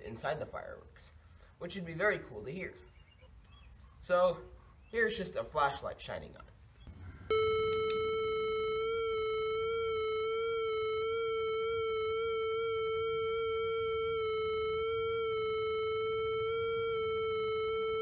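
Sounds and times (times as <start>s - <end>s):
buzzy electronic tone: 6.9s - 18.0s
circuit switch click: 7.3s - 18.0s.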